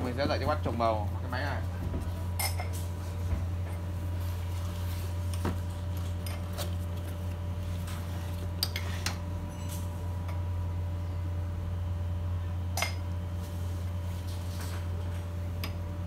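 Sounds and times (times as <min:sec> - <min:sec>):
steady low hum: 0:00.0 - 0:16.0
glass clinking against metal: 0:02.4 - 0:02.8, 0:09.5 - 0:09.9, 0:12.8 - 0:13.0.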